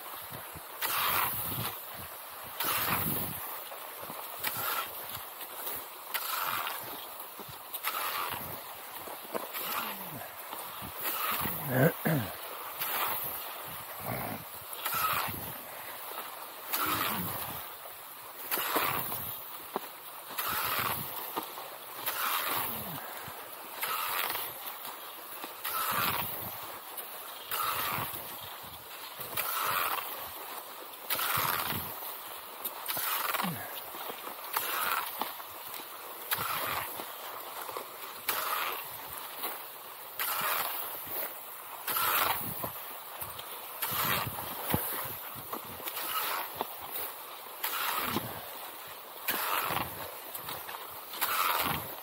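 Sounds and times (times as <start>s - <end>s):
skis swishing on snow: 0.0s - 52.0s
light clicks and crunches: 0.2s - 52.0s.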